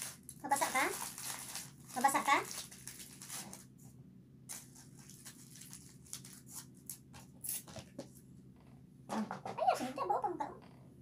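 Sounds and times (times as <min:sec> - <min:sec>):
aluminium foil crinkling: 0:00.0 - 0:03.8, 0:04.5 - 0:07.7.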